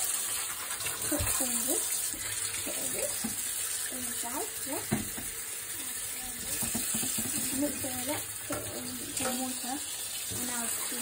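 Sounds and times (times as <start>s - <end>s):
utensils being washed: 0.0s - 11.0s
tap running into metal sink: 2.2s - 3.5s, 4.7s - 5.4s, 6.4s - 9.6s.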